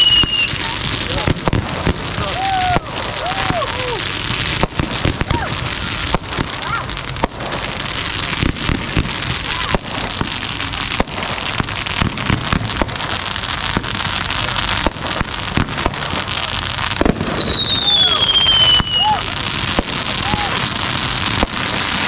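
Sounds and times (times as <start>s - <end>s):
fireworks crackling: 0.0s - 22.0s.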